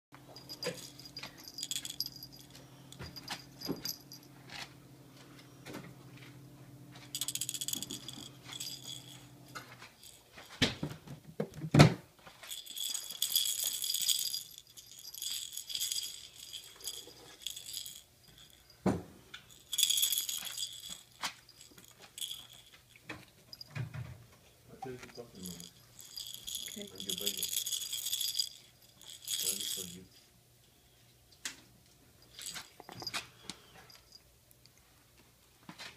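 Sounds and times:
high jingling: 0.3s - 4.4s, 7.1s - 10.7s, 12.4s - 18.8s, 19.5s - 23.8s, 24.8s - 30.0s, 32.2s - 34.2s.

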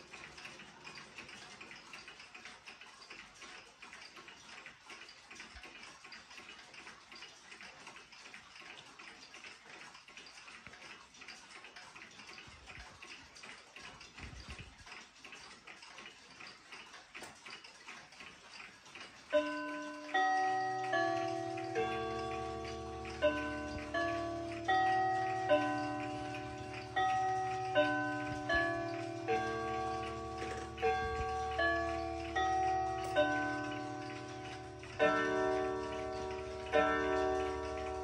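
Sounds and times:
pendulum wall clocks ticking: 0.0s - 38.0s
wall clock hour chime: 14.9s - 38.0s.

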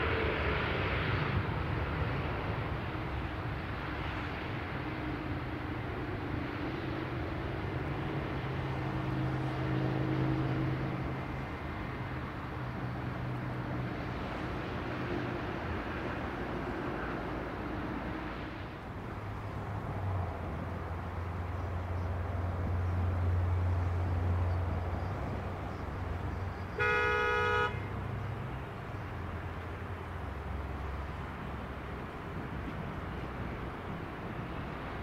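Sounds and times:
steady noisy rumble: 0.0s - 35.0s
vehicle horn toot: 26.7s - 28.0s.

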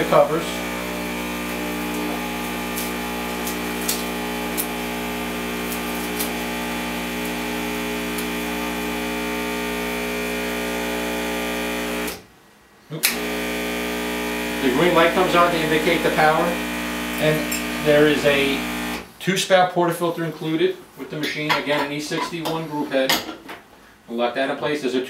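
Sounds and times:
espresso machine pump buzzing: 0.0s - 12.2s, 13.1s - 19.1s.

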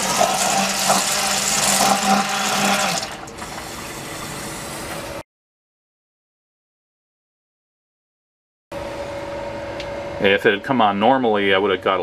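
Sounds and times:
sump pump humming: 0.0s - 5.2s.

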